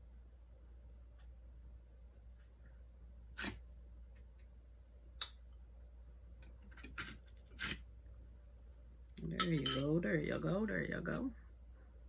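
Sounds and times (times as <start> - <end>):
low steady hum: 0.0 - 12.0
spoon scraping glass bowl: 9.4 - 9.9.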